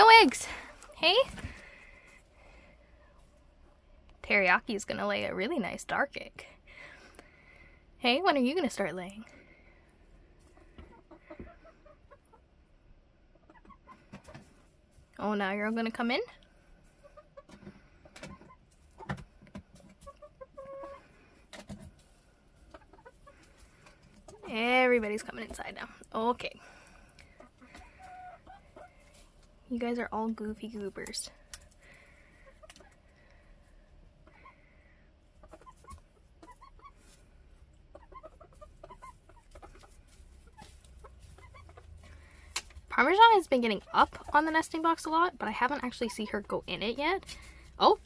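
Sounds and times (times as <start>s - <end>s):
hens clucking: 10.0s - 14.8s, 16.7s - 29.6s, 30.9s - 48.0s
hens scuffing on wood shavings: 38.6s - 48.0s.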